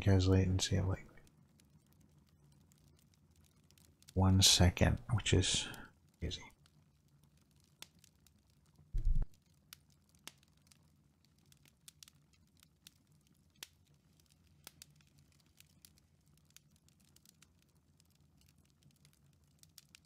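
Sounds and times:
fire crackling pops: 0.3s - 20.0s
faint low hum: 9.0s - 9.3s
loud low thump: 9.0s - 9.3s.

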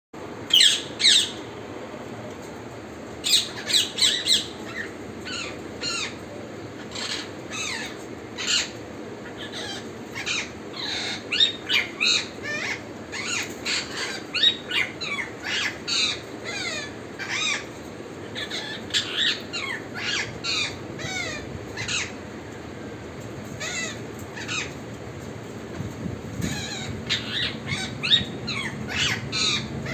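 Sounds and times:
steady low hiss: 0.2s - 29.9s
parakeet squawking: 6.8s - 17.7s, 18.3s - 22.2s, 23.6s - 24.8s, 26.4s - 29.9s.

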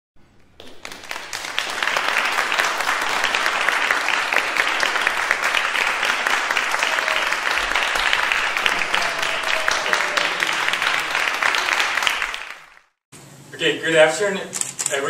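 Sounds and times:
audience applauding: 0.5s - 13.0s.

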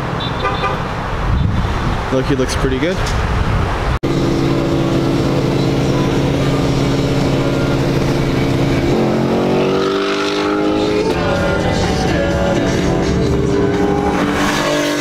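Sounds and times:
car engine accelerating: 4.0s - 15.0s.

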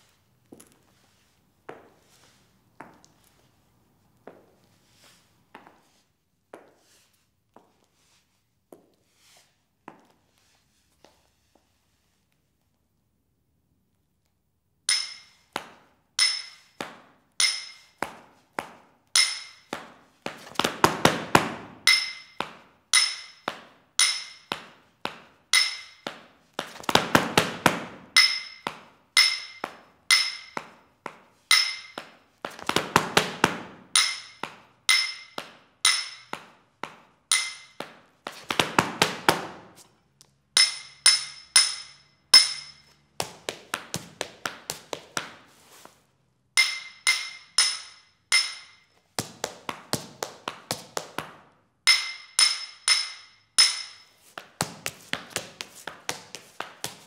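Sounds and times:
tap shoes on hard floor: 2.7s - 3.4s, 4.2s - 4.6s, 5.5s - 6.8s, 9.8s - 10.2s, 14.9s - 40.4s, 42.8s - 46.0s, 48.4s - 51.4s, 53.6s - 57.0s.

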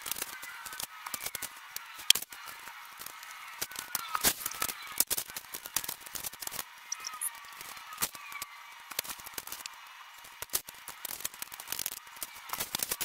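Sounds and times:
vinyl film crackling: 0.0s - 13.0s
faint short squeaks: 6.9s - 7.4s
sharp clicks: 6.9s - 7.4s.

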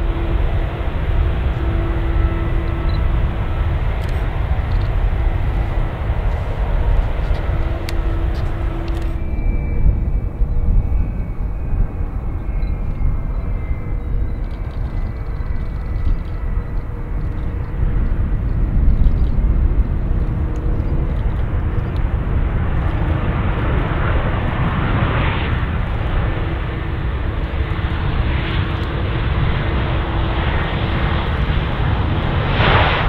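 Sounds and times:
faint high whine: 0.0s - 33.0s
jet engines rumbling: 0.0s - 33.0s.

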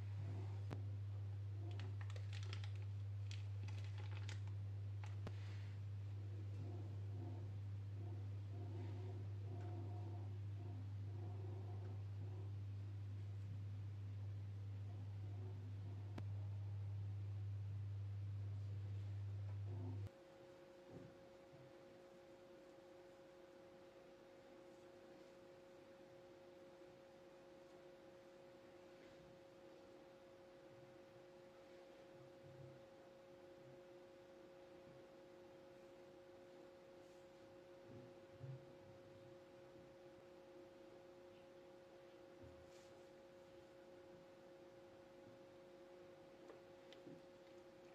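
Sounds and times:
two-tone electrical hum: 0.0s - 47.9s.

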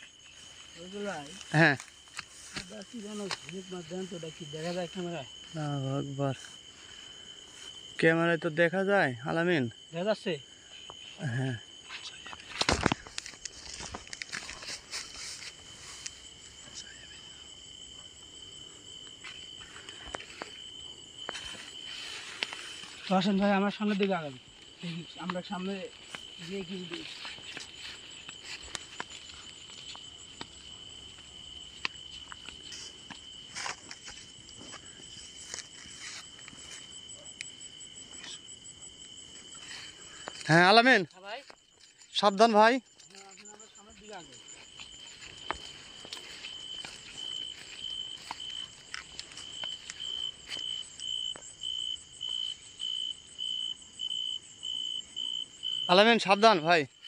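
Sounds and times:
footsteps on dirt path: 0.0s - 5.6s, 12.1s - 16.6s, 17.6s - 37.1s, 38.5s - 52.5s
leaves rustling: 0.0s - 5.6s, 12.1s - 16.7s, 19.2s - 37.0s, 39.4s - 51.1s
crickets trilling: 0.0s - 57.0s
insect chirping: 0.0s - 57.0s.

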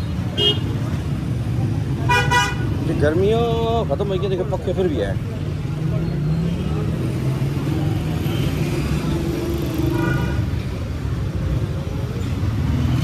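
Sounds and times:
traffic engines rumbling: 0.0s - 13.0s.

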